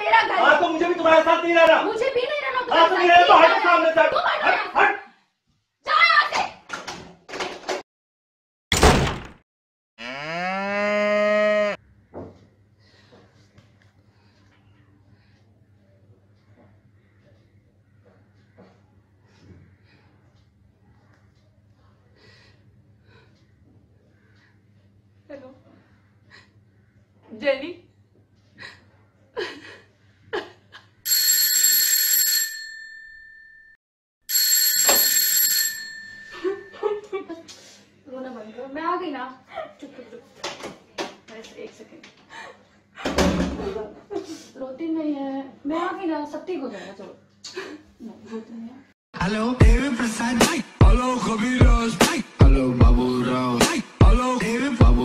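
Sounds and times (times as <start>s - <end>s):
cow mooing: 10.0s - 11.8s
doorbell ringing: 31.1s - 37.0s.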